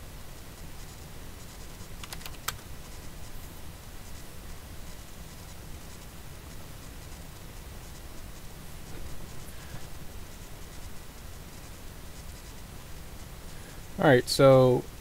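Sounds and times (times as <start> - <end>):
low steady hum: 0.0 - 15.0
keyboard keystrokes: 2.0 - 2.6.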